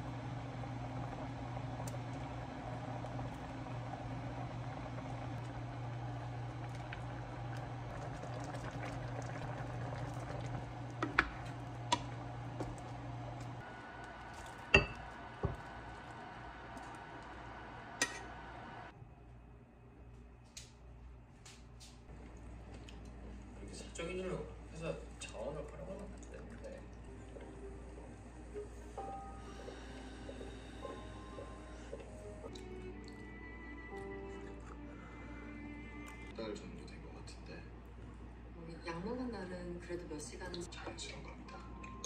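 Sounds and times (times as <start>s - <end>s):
soup simmering and bubbling: 0.0s - 18.9s, 25.4s - 33.9s
steady low hum: 0.0s - 42.0s.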